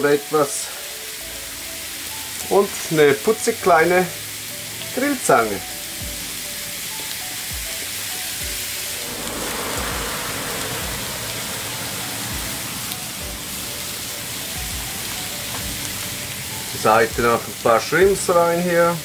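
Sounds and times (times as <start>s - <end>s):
meat sizzling on grill plate: 0.0s - 19.0s
quiet music with soft beat: 0.8s - 9.0s, 12.3s - 19.0s.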